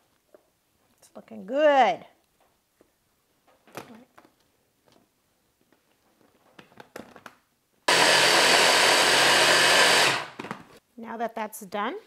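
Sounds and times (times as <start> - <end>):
hand blender motor grinding: 7.9 - 10.4.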